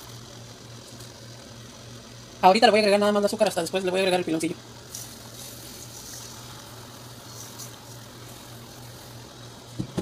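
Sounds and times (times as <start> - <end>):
steady low hum: 0.0 - 10.0
sugar pouring grainy hiss: 4.8 - 9.7.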